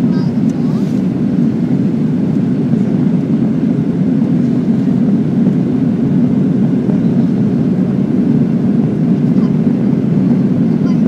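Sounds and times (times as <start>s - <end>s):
jet airliner cabin rumble: 0.0s - 11.0s.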